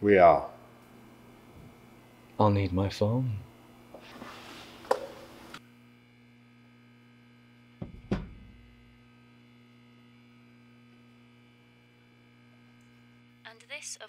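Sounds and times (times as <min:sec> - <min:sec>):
steady low hum: 0:00.0 - 0:14.0
heavy thumps: 0:07.8 - 0:08.8.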